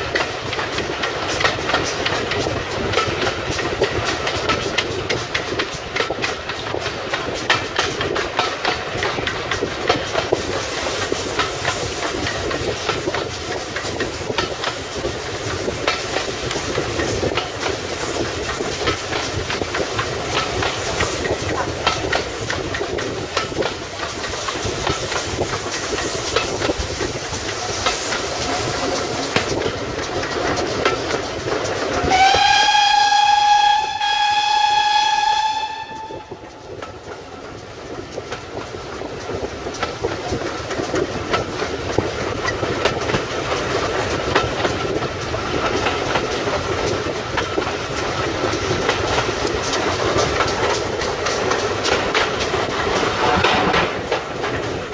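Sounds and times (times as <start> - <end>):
train wheels clicking over rail joints: 0.0 - 54.9
steam whistle blast: 32.1 - 36.4.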